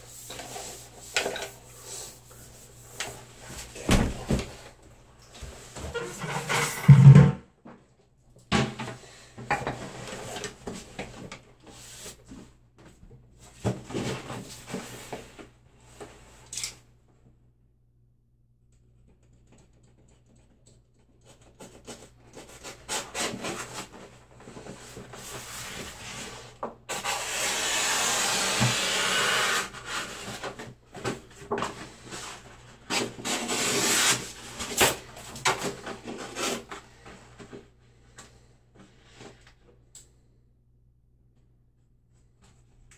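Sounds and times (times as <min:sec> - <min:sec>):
hand scraping wallpaper: 0:00.0 - 0:04.6, 0:21.5 - 0:30.6, 0:31.8 - 0:37.0.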